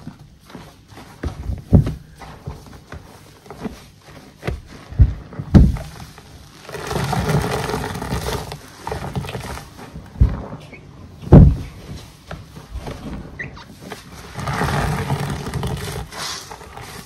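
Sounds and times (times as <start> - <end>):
sponges squelching in soapy water: 2.1 - 10.4, 13.5 - 17.0.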